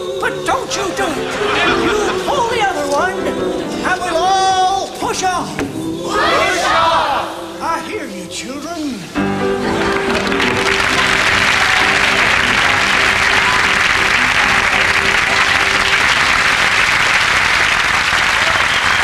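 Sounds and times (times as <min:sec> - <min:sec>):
audience applauding: 0:00.7 - 0:03.3, 0:09.4 - 0:19.0.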